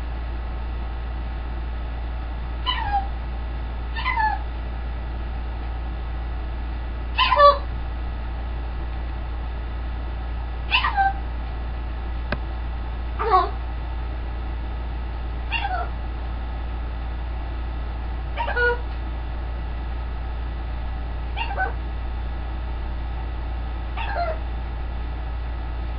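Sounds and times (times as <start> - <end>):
macaw calls: 21.4 - 21.8.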